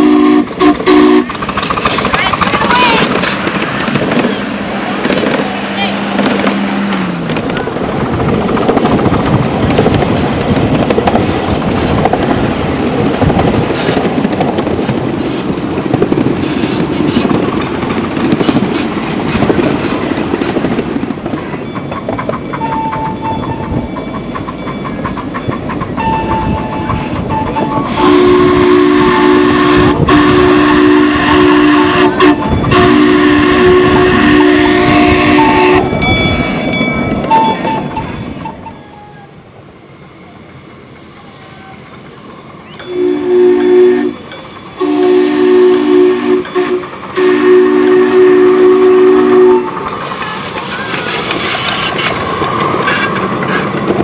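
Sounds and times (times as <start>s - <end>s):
steam whistle blasts: 0.0s - 1.3s, 26.1s - 36.0s, 42.8s - 44.2s, 44.8s - 49.9s
train rumbling and clattering on track: 0.0s - 54.0s.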